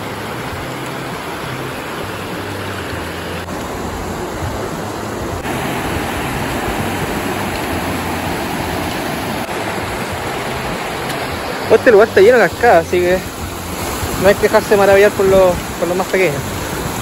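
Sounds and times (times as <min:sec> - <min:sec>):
stream rushing over rock: 0:00.0 - 0:17.0.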